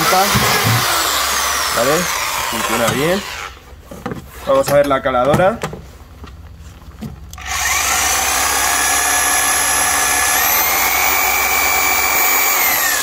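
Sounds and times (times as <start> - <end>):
electric jigsaw motor whining: 0.0 - 3.6, 7.4 - 13.0.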